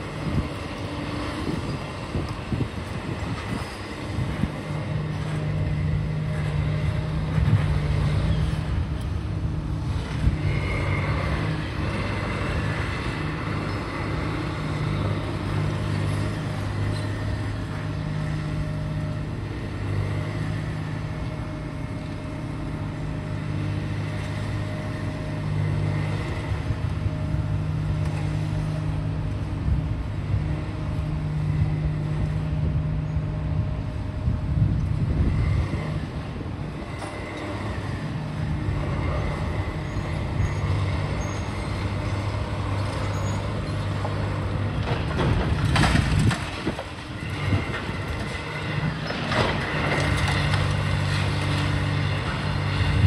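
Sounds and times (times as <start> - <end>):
large engine humming: 0.0 - 53.0.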